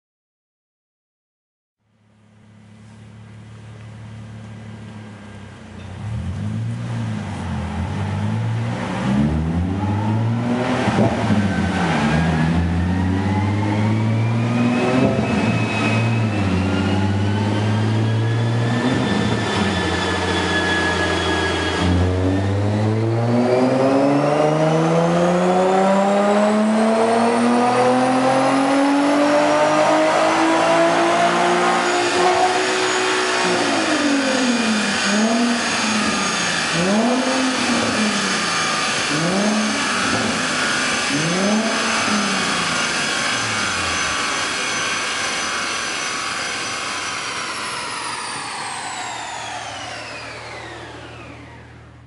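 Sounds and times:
car engine revving under load: 2.4 - 52.0.

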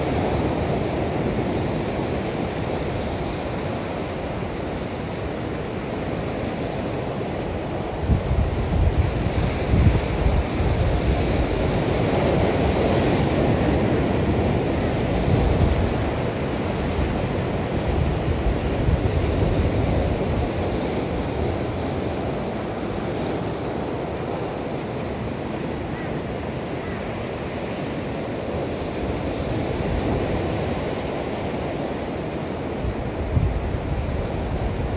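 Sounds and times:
wind buffeting microphone: 7.7 - 24.6, 32.7 - 34.9.

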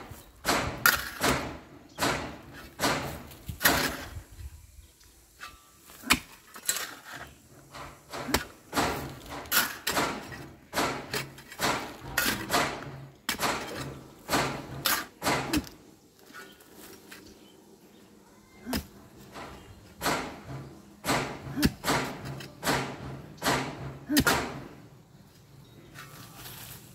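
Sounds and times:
shovel chopping into soil: 8.1 - 15.8.

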